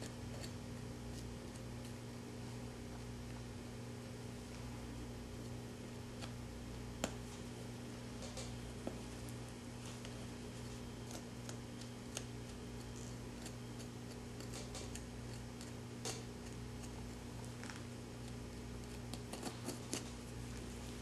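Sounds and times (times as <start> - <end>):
steady low hum: 0.0 - 21.0
scalpel clicking and scraping: 11.1 - 17.0.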